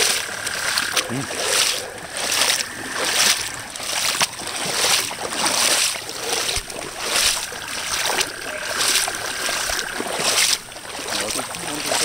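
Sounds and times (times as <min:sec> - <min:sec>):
feet wading through water: 0:00.0 - 0:12.0.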